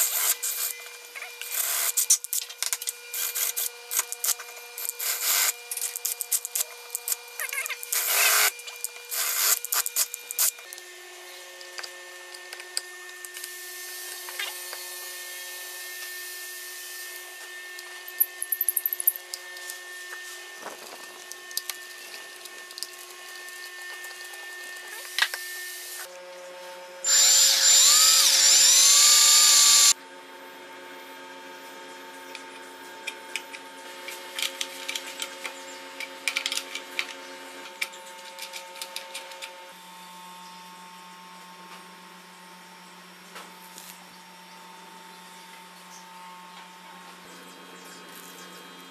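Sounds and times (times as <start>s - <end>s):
electric drill boring into wood: 0.0s - 10.8s, 27.0s - 30.0s
power tool motor running: 0.0s - 26.1s, 27.0s - 30.0s.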